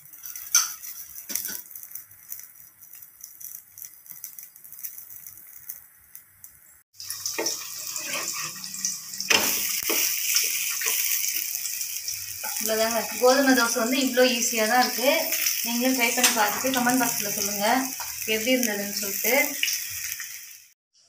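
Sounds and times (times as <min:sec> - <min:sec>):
batter sizzling on a hot pan: 0:00.0 - 0:20.8
spatula scraping a pan: 0:00.1 - 0:02.4, 0:07.0 - 0:11.6.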